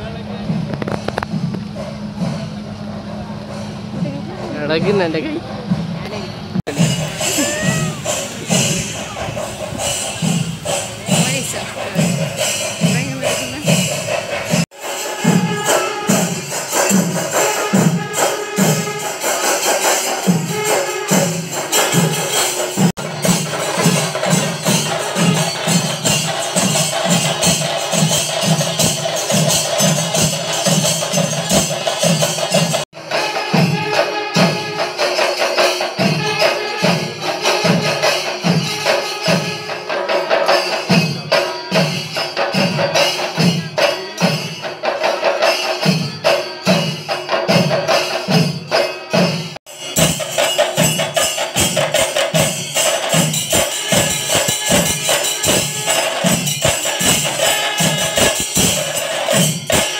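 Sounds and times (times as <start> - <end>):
deep drum strokes: 0.0 - 38.9
clashing cymbals: 0.4 - 59.9.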